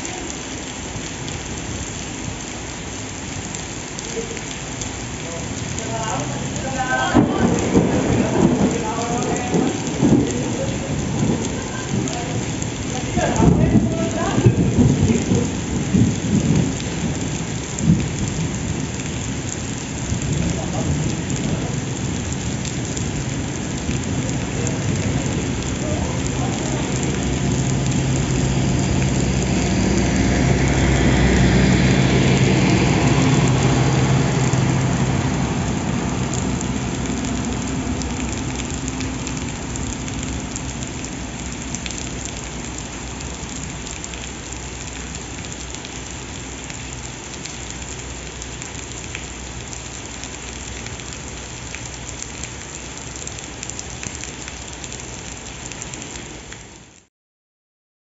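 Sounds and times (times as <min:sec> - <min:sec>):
heavy rain pouring: 0:00.0 - 0:57.1
passing train drone: 0:05.4 - 0:14.8, 0:24.2 - 0:42.3.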